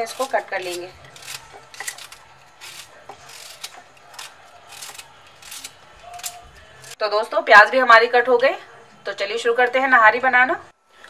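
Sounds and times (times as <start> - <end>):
knife slicing onion: 0.0 - 7.0.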